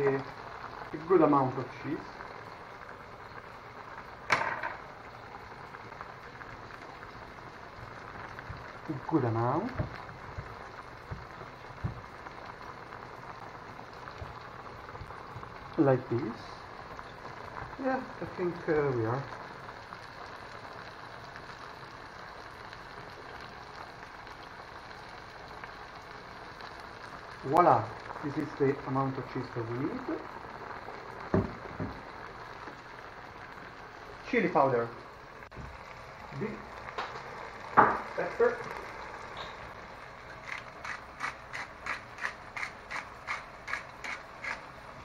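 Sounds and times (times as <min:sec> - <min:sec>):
steady background hiss: 0:00.0 - 0:20.5
cheese grating on metal grater: 0:40.4 - 0:44.6
pepper mill grinding clicks: 0:40.5 - 0:44.6.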